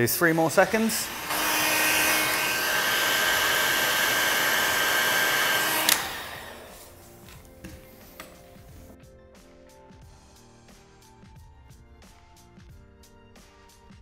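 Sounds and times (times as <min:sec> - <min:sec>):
heat gun blowing with whine: 0:00.3 - 0:07.3
heat gun switch click: 0:05.2 - 0:06.6.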